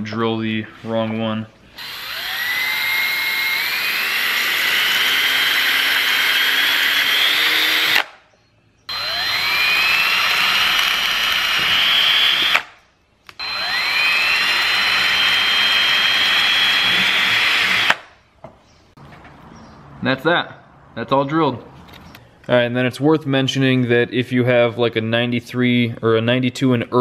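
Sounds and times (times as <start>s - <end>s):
power drill motor whine: 1.8s - 8.1s, 8.9s - 18.0s.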